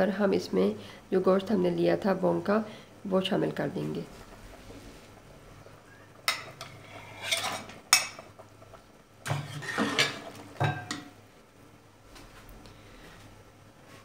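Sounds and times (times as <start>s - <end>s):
stirring and scraping in pot: 4.0s - 11.0s
metal spatula scraping a plate: 6.3s - 8.2s, 9.2s - 10.3s.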